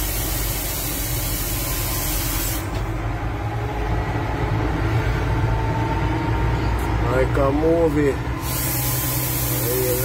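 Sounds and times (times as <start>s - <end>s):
air hiss: 0.0s - 2.8s, 8.4s - 10.0s
car engine and road rumble: 0.0s - 10.0s.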